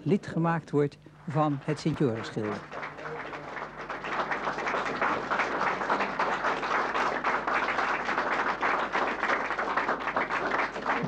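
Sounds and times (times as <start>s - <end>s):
audience applauding: 1.3s - 11.0s.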